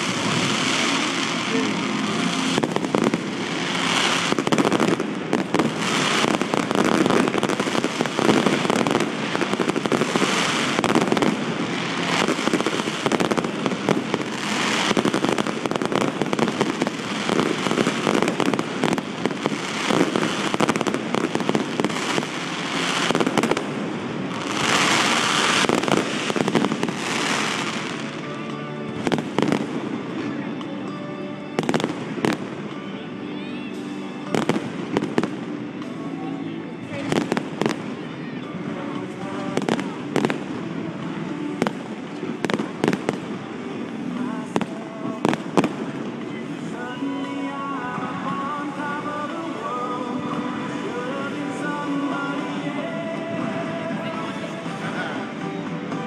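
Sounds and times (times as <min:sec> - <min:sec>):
fireworks crackling: 0:00.0 - 0:56.0.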